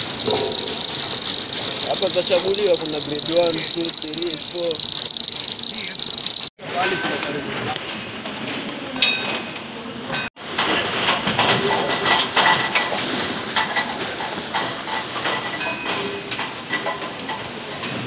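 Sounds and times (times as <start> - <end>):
conveyor line clattering: 0.0 - 8.0.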